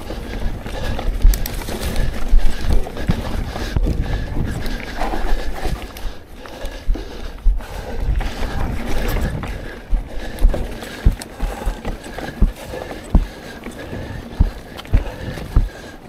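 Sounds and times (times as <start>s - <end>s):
tyres rumbling over dirt: 8.0s - 16.0s.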